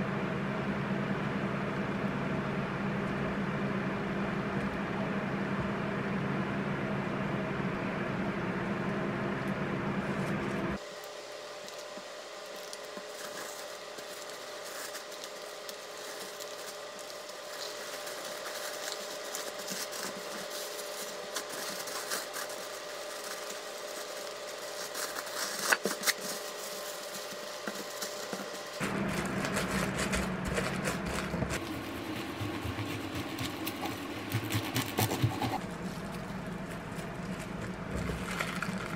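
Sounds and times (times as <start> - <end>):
electrical hum: 0.0 - 38.9
paper and plastic wrap crinkling: 10.4 - 38.9.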